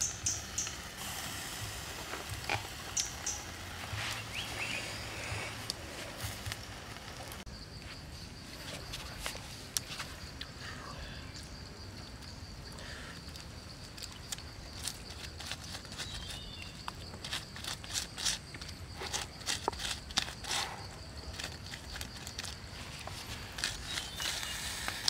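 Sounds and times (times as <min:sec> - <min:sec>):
high insect drone: 0:00.0 - 0:25.0
crackles and taps over embers: 0:01.9 - 0:04.0, 0:05.6 - 0:07.4, 0:13.2 - 0:20.5, 0:21.2 - 0:25.0.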